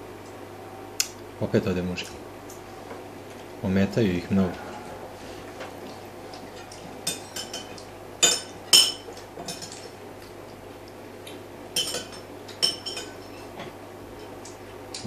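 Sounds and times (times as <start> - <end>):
low hum: 0.0 - 7.2.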